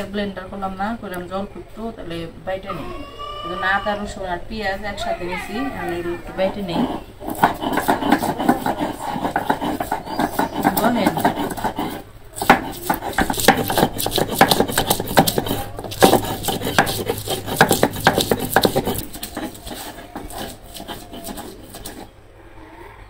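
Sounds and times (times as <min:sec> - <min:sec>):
stone roller scraping on grinding stone: 0:06.1 - 0:22.1.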